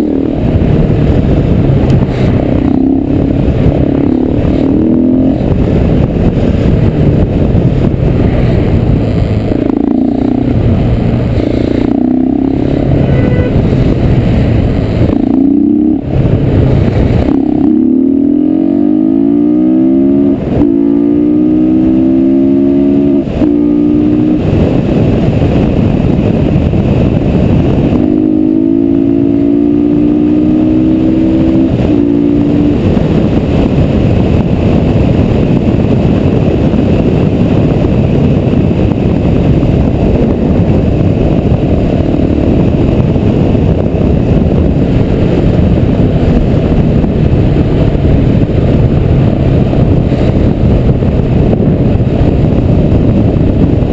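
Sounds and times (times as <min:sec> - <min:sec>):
motorcycle engine accelerating: 0:00.0 - 0:53.9.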